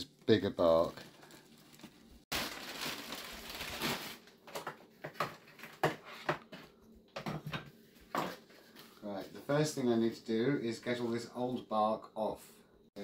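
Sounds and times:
plastic sack rustling and crinkling: 0:00.2 - 0:05.6.

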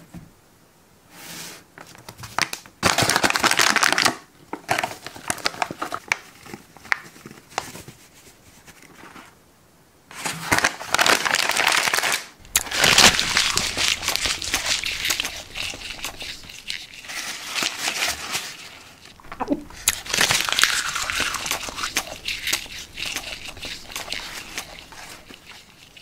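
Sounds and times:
plastic chip bag crinkling: 0:02.8 - 0:07.0, 0:10.1 - 0:26.0.

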